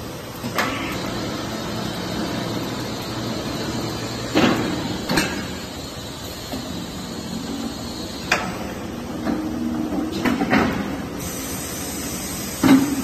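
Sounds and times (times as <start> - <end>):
machine mechanical hum: 0.0 - 13.0.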